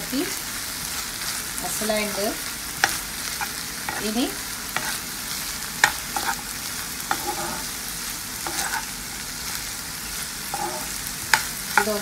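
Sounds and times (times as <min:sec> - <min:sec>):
vegetables sizzling in oil: 0:00.0 - 0:12.0
metal spatula stirring: 0:02.8 - 0:05.0, 0:05.8 - 0:06.5, 0:07.1 - 0:07.7, 0:08.4 - 0:09.2, 0:10.5 - 0:12.0.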